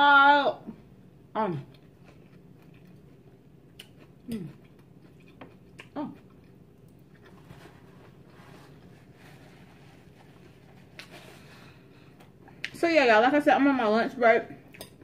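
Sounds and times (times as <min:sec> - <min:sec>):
chewing: 0:01.7 - 0:07.8.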